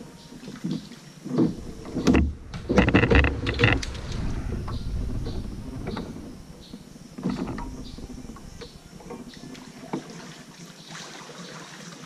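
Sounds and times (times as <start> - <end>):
paddle splashing in water: 0.0 - 12.0
low rumble: 1.5 - 9.5.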